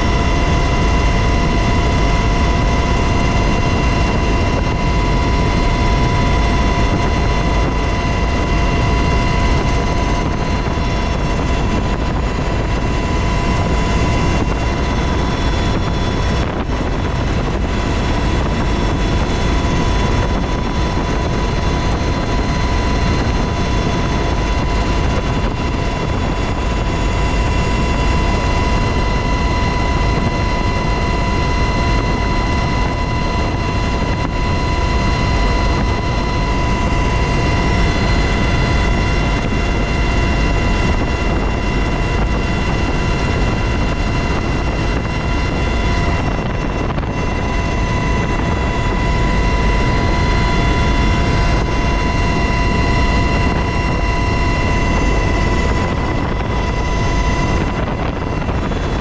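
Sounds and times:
helicopter rotor and turbine noise: 0:00.0 - 0:59.0.

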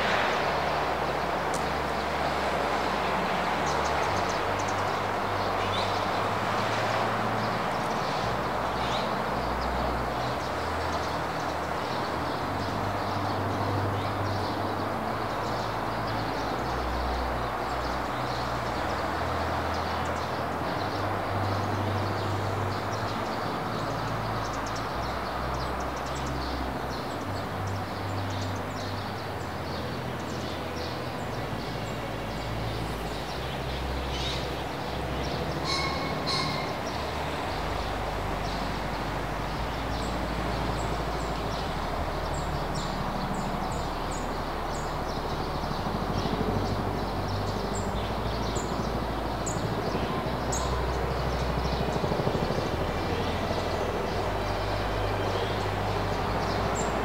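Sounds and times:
wind rushing through foliage: 0:00.0 - 0:57.0.

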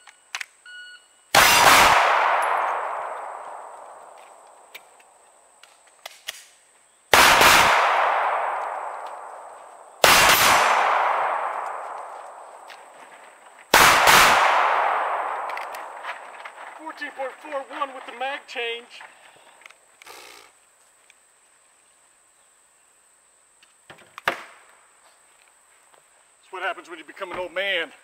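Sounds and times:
pistol shots with ringing echo: 0:01.3 - 0:04.6, 0:07.1 - 0:13.0, 0:13.7 - 0:16.3.

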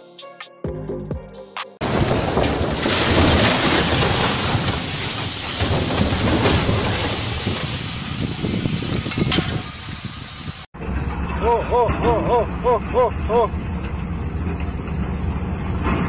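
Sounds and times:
boulder crashing rumble: 0:01.8 - 0:09.0.

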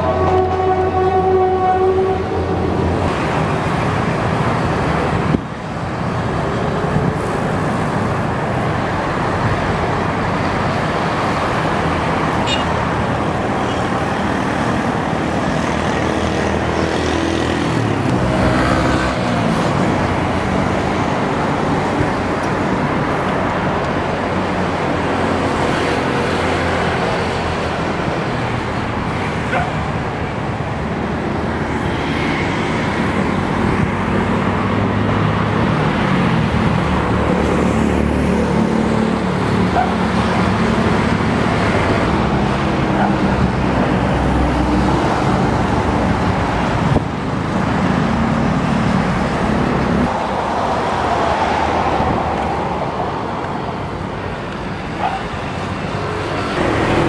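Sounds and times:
road traffic noise: 0:00.0 - 0:57.0.

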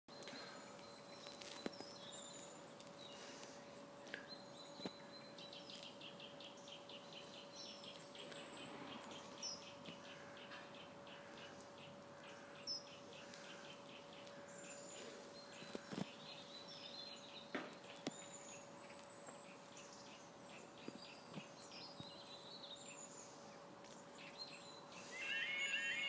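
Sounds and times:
birds chirping faintly: 0:00.1 - 0:26.0
faint steady hum: 0:00.1 - 0:26.0
level crossing warning alarm: 0:25.0 - 0:26.0.

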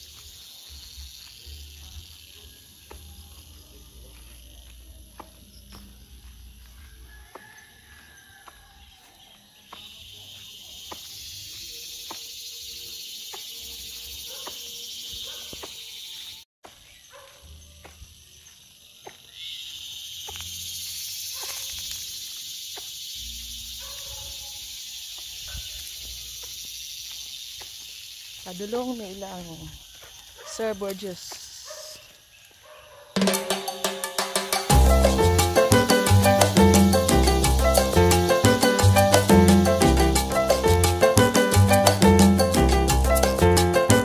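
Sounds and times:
footsteps on dirt path: 0:00.0 - 0:12.3, 0:14.3 - 0:19.4, 0:21.4 - 0:23.0, 0:25.1 - 0:33.0
high insect chorus: 0:00.0 - 0:44.0.

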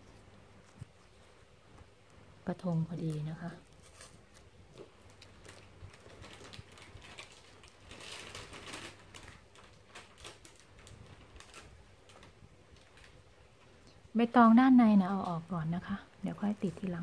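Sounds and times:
leaves rustling and crackling: 0:02.6 - 0:13.8.

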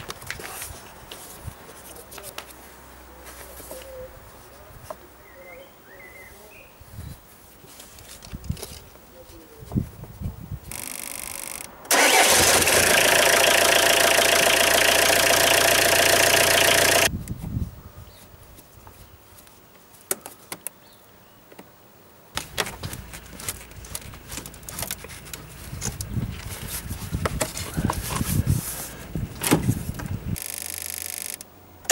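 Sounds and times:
starter cranking engine: 0:10.7 - 0:17.1, 0:30.4 - 0:31.9
diesel car engine idling: 0:11.9 - 0:17.1
hands rustling with rubber hose: 0:22.4 - 0:30.0.

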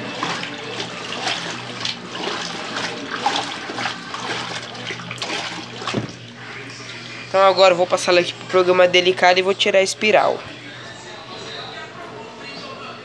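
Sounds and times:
water churning and sloshing: 0:00.0 - 0:09.4
washing machine motor hum: 0:00.0 - 0:13.0.

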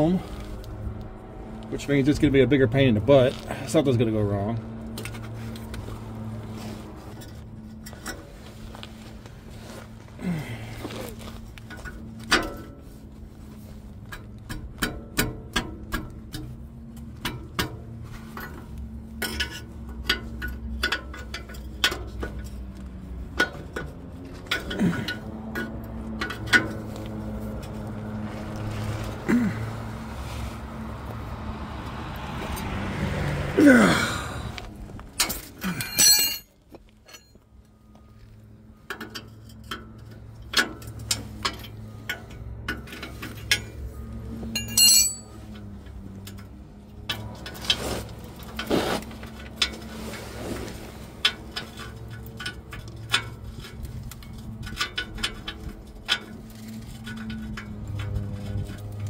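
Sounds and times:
metal tools clinking and scraping: 0:16.2 - 0:29.6, 0:35.1 - 0:59.0.

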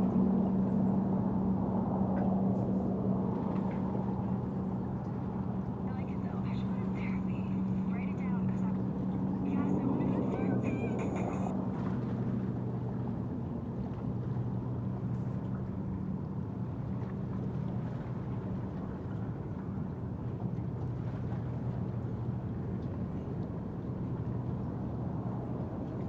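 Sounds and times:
low engine drone: 0:00.0 - 0:26.0
rushing background noise: 0:05.8 - 0:11.5.

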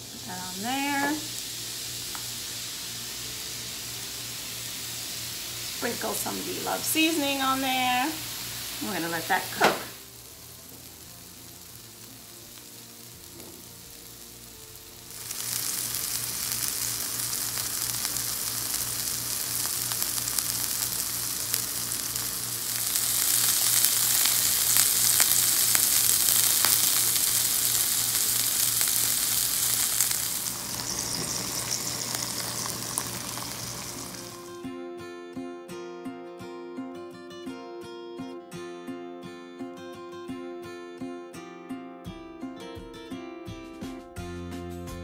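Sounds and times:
patty sizzling on a griddle: 0:00.0 - 0:34.5.

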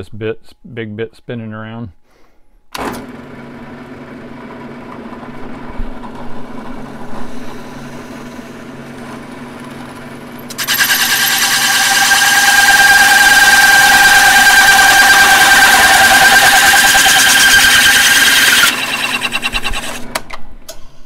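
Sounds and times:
drill press running: 0:08.0 - 0:20.3
cutter grinding into board: 0:10.4 - 0:20.2.

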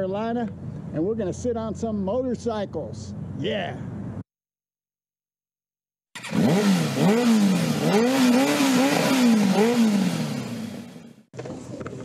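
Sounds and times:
motorcycle engine revving: 0:06.1 - 0:11.3.

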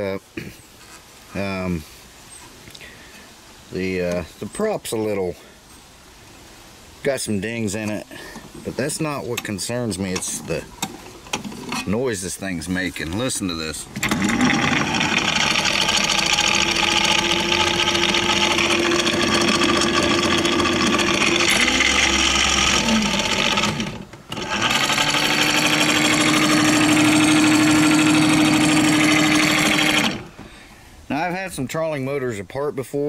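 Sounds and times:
rough buzzing mechanical noise: 0:13.2 - 0:30.5
electric trolling motor humming: 0:14.0 - 0:30.4.

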